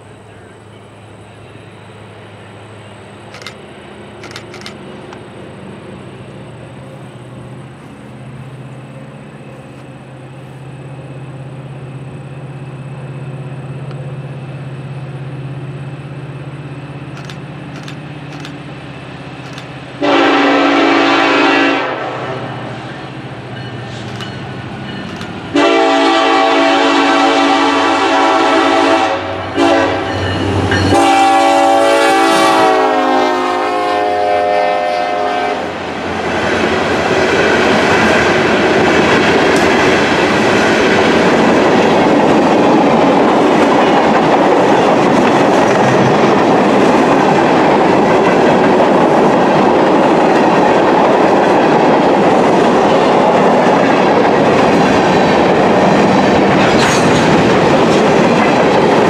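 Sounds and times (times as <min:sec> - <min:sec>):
freight cars wheel-on-rail noise: 0:00.0 - 0:59.0
locomotive air horn: 0:20.0 - 0:22.5, 0:25.5 - 0:35.8.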